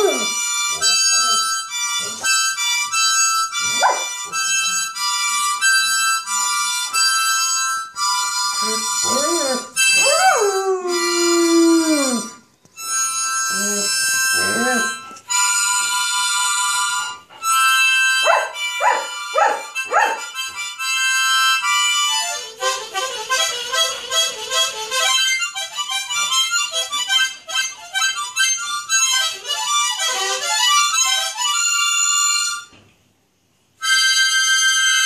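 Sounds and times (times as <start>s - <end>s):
dog howling and whining: 0.0s - 0.4s, 3.7s - 4.1s, 8.6s - 12.4s, 13.5s - 15.1s
harmonica playing: 0.0s - 32.8s, 33.8s - 35.0s.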